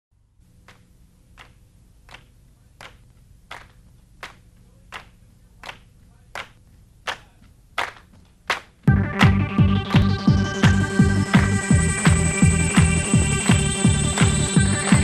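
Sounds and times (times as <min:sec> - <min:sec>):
faint low hum: 0:00.2 - 0:08.8
steady sharp claps: 0:00.6 - 0:15.0.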